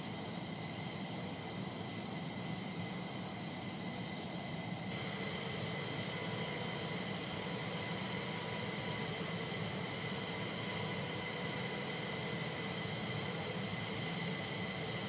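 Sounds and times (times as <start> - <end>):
high steady whining tones: 0.0 - 15.0
rushing hiss: 4.9 - 13.5.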